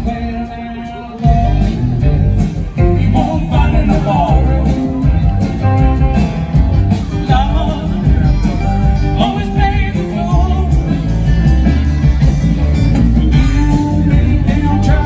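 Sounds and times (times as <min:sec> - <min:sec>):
live band playing amplified music: 0:00.0 - 0:15.0
person singing: 0:02.8 - 0:05.4, 0:07.1 - 0:11.1, 0:13.3 - 0:15.0.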